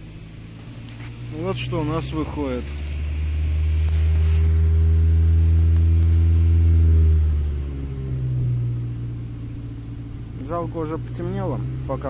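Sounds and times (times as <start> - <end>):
car engine running steadily: 0.0 - 12.0.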